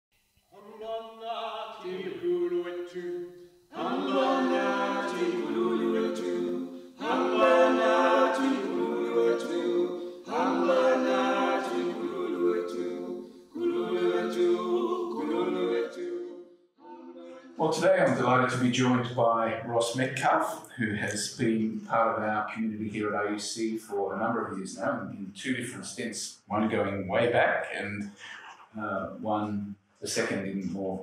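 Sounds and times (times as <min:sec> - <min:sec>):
choir singing unaccompanied: 0:00.6 - 0:19.2.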